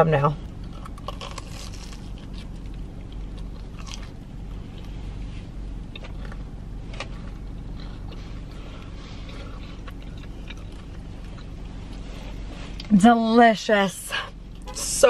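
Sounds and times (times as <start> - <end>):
steady low hum: 0.0 - 15.0
crunching and chewing: 0.5 - 12.9.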